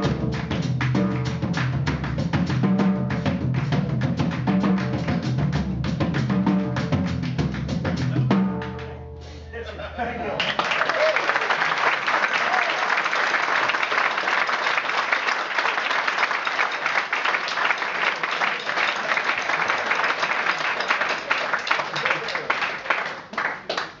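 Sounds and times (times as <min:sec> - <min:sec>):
audience applauding: 0:10.3 - 0:24.0.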